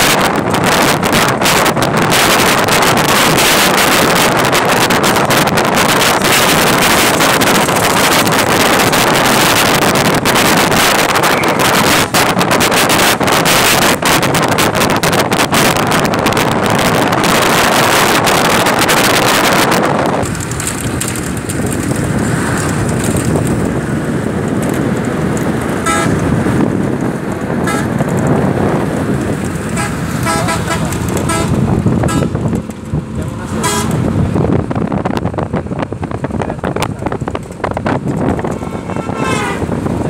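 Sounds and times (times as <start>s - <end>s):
vehicle rumble: 0.0s - 40.0s
wind rushing over microphone: 0.0s - 40.0s
short horn toots: 25.8s - 26.2s, 29.8s - 32.4s, 33.6s - 34.0s, 38.4s - 39.8s.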